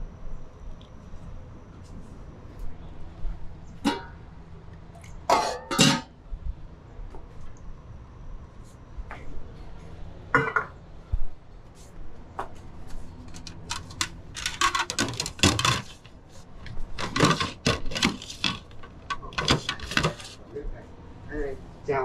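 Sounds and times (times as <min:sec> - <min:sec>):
bowls and utensils clattering: 0:05.3 - 0:06.1, 0:10.4 - 0:10.8, 0:13.6 - 0:16.1, 0:17.0 - 0:20.4.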